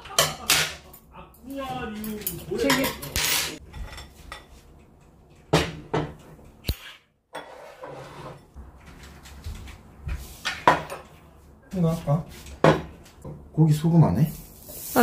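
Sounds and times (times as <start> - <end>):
chopsticks and bowls clinking: 1.9 - 5.4.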